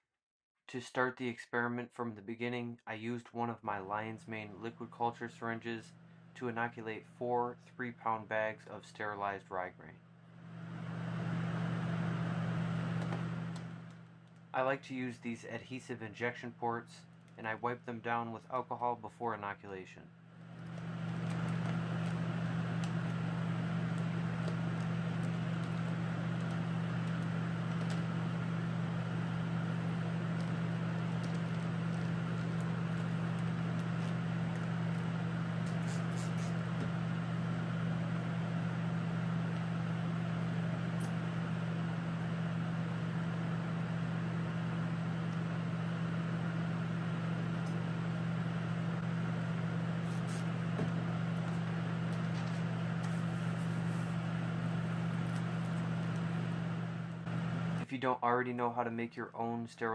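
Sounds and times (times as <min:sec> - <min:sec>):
blower humming: 0:10.2 - 0:14.6, 0:20.2 - 0:57.9.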